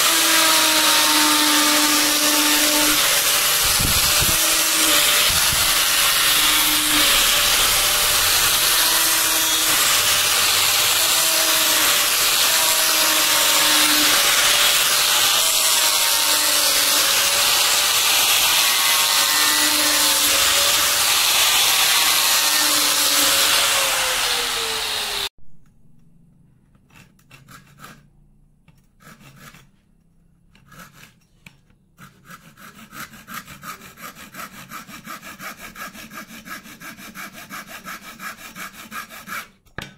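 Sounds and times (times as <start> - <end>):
power tool motor running on wood: 0.0 - 25.3.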